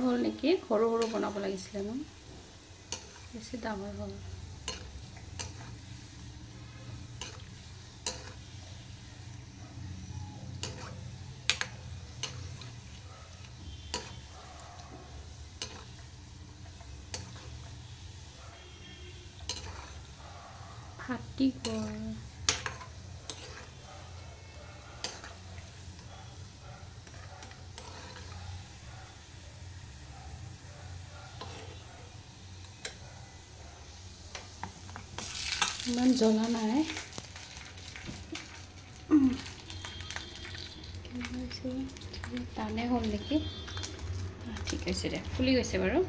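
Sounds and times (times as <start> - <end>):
dough frying in hot oil: 0.0 - 46.0
ladle clinking and scraping pan: 19.4 - 20.1, 21.6 - 23.8, 25.0 - 25.4, 27.0 - 28.4.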